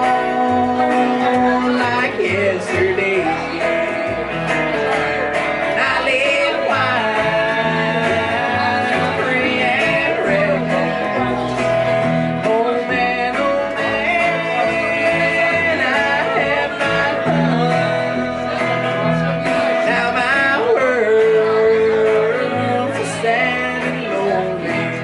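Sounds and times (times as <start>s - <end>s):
electric guitars: 0.0s - 25.0s
man singing: 0.0s - 25.0s
upright bass walking: 0.0s - 25.0s.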